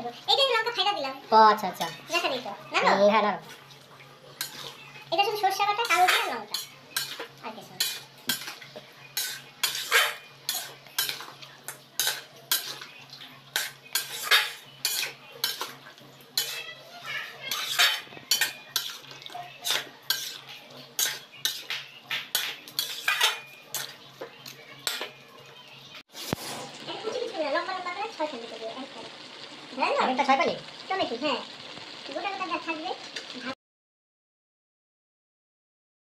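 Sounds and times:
spoon scraping metal wok: 3.5 - 25.3, 26.1 - 26.8.

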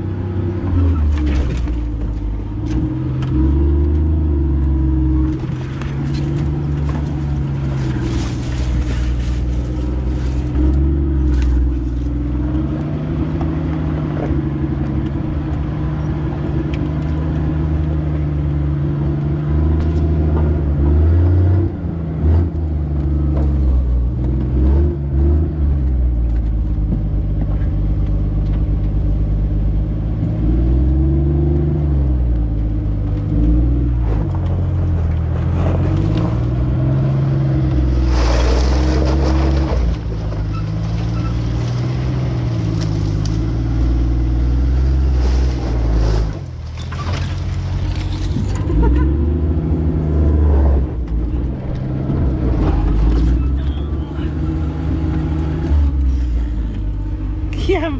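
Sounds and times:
tyres and body clattering over rocks: 0.7 - 3.4, 5.1 - 15.1, 33.9 - 49.2, 51.0 - 54.6.

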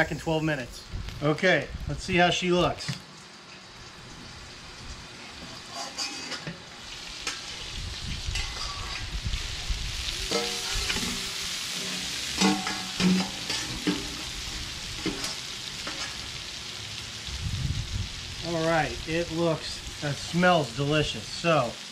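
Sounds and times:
meat sizzling on a griddle: 1.8 - 21.9
metal utensils clanking: 5.4 - 6.6, 8.3 - 9.1, 10.3 - 14.3, 15.0 - 16.2.

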